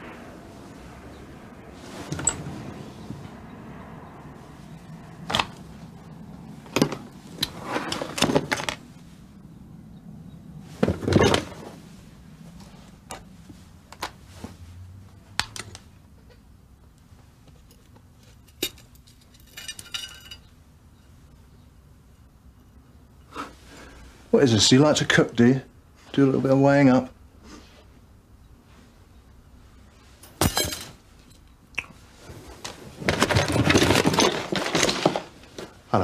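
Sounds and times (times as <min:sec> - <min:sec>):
drawer being rummaged through: 0:06.6 - 0:08.8, 0:10.7 - 0:11.8, 0:32.3 - 0:35.8.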